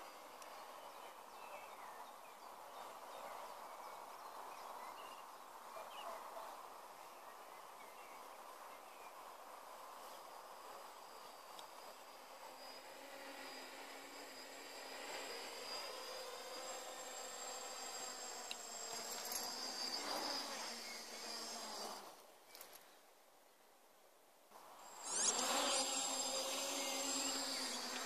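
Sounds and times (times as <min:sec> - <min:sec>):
quadcopter motors buzzing: 0:00.0 - 0:04.9, 0:08.1 - 0:22.8, 0:24.6 - 0:28.0.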